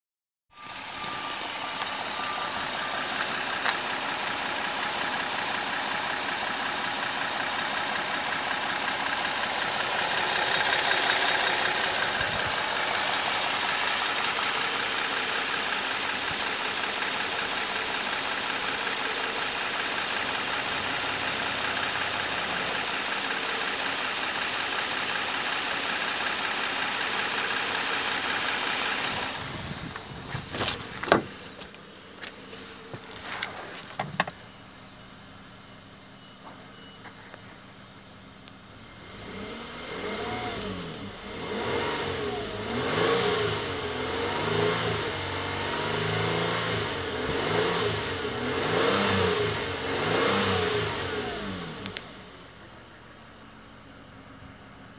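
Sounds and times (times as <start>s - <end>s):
car engine idling: 0.5s - 54.9s
car door clicks and knocks: 30.5s - 31.4s, 33.9s - 34.4s.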